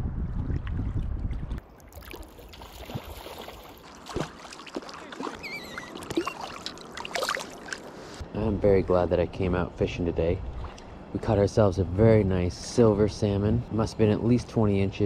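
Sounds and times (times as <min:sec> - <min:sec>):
river water trickling and splashing: 0:00.4 - 0:08.2, 0:10.4 - 0:11.2.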